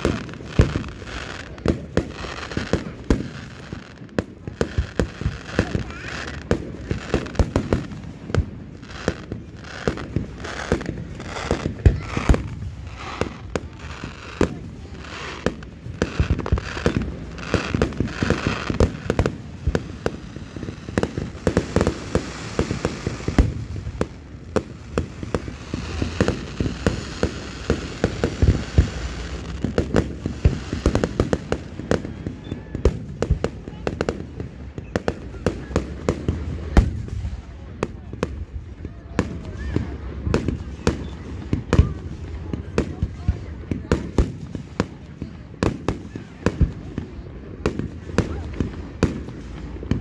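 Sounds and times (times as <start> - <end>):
fireworks bangs: 0.0 - 50.0
fireworks crackling: 0.0 - 50.0.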